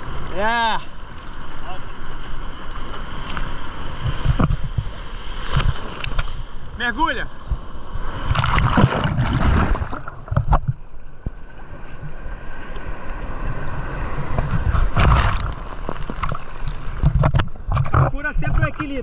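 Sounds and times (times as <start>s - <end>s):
low rumble of water and wind: 0.0s - 19.0s
sea water splashing on camera: 7.4s - 19.0s.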